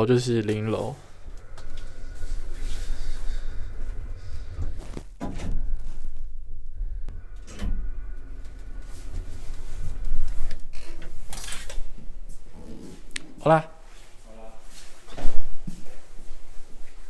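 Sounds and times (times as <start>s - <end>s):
low rumble: 0.9s - 13.2s
lift doors clunking and rattling: 1.0s - 12.4s.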